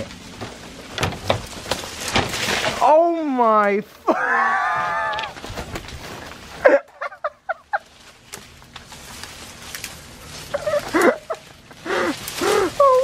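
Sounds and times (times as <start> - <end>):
leafy branches rustling: 0.0 - 13.0
sharp crack: 1.0 - 3.8.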